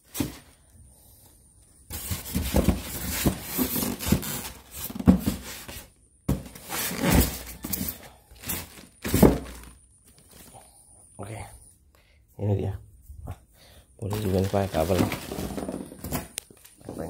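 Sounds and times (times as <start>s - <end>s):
styrofoam and cardboard rubbing: 1.9s - 9.7s
plastic wrap rustling: 1.9s - 10.5s, 14.0s - 17.0s.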